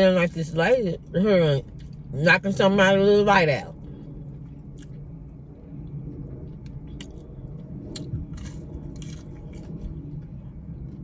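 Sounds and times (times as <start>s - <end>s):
chewing clicks: 4.7s - 5.0s, 5.8s - 11.0s
crunchy bite: 6.5s - 10.2s.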